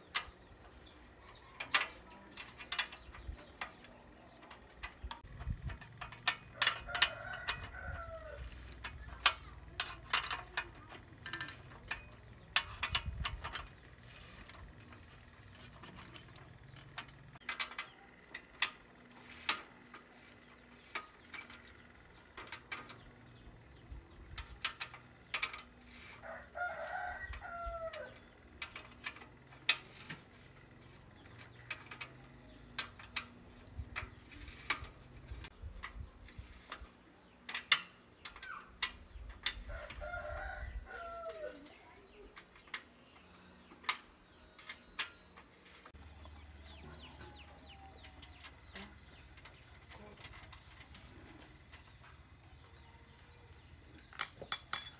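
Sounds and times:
rooster crowing: 26.2 - 28.2, 39.7 - 41.6
wrench clinking on metal: 53.9 - 54.9.

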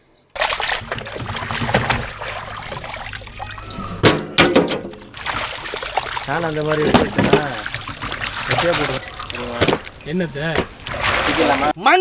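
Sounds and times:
water sloshing and splashing: 0.3 - 11.8
knocks: 4.0 - 5.1.

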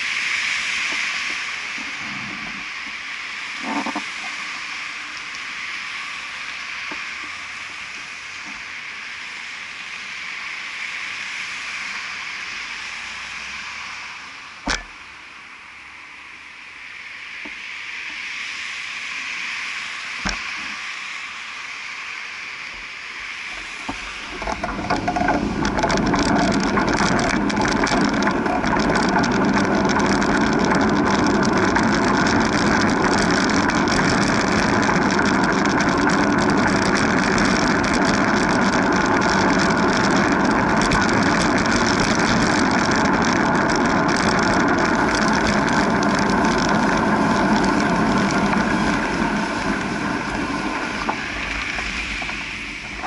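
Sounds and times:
wind noise on microphone: 0.0 - 8.7, 23.5 - 53.0
bicycle rattling: 23.6 - 53.0.

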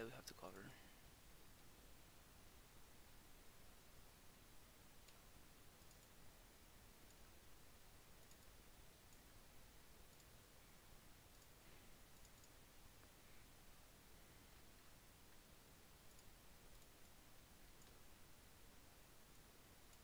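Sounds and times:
low hiss: 0.0 - 20.0
computer mouse clicks: 5.0 - 6.2, 7.0 - 7.3, 8.2 - 9.3, 10.0 - 10.4, 11.3 - 13.1, 16.0 - 18.0, 19.2 - 20.0.

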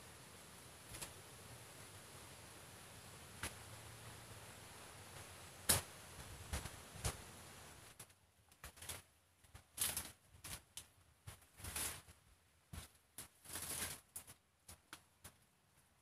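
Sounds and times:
leaves and stalks rustling: 3.0 - 14.4.

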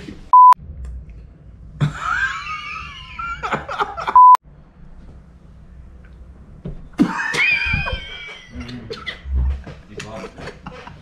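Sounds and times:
censor bleep: 0.3 - 0.6, 4.2 - 4.4.

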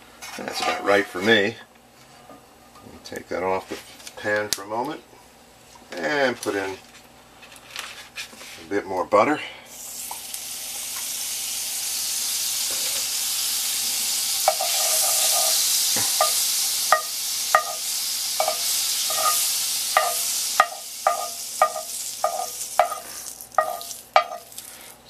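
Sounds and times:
metal spatula scraping a pan: 0.4 - 1.2, 14.5 - 17.8, 18.4 - 24.5
butter sizzling in skillet: 9.7 - 25.0.

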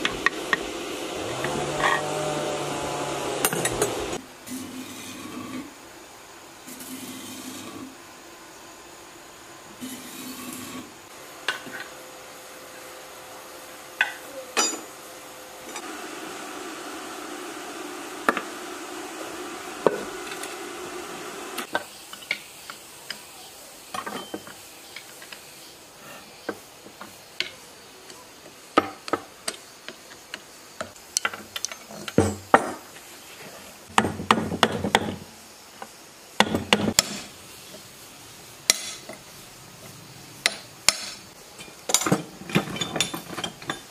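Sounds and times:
metal tools clanking on engine parts: 14.0 - 14.9, 24.0 - 24.6, 31.3 - 32.8, 41.6 - 43.9.

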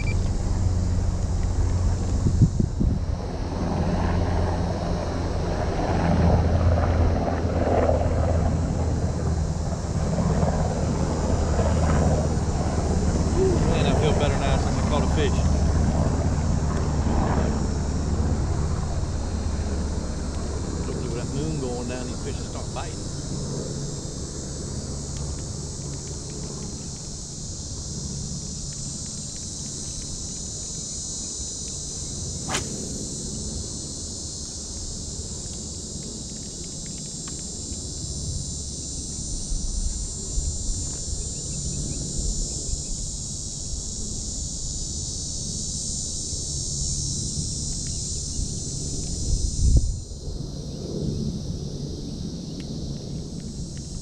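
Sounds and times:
high-pitched insect chorus: 0.0 - 54.0
sharp click: 32.4 - 33.1.

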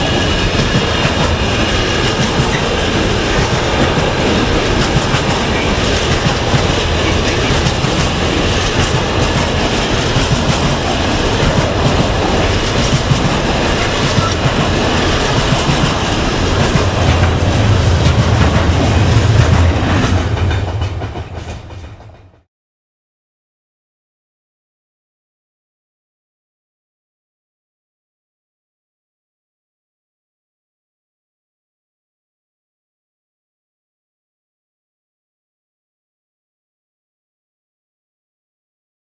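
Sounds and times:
freight wagons rumbling past: 0.0 - 22.5.

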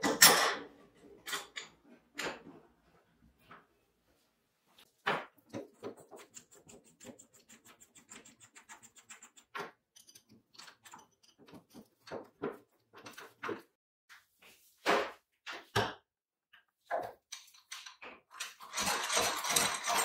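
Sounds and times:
hand drill gearing ticking: 18.7 - 20.0.

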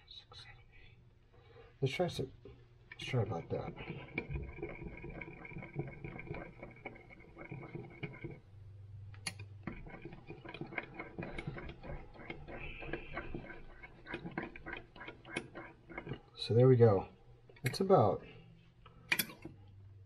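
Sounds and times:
knife scraping inside a cup: 3.1 - 8.4, 9.6 - 16.3.

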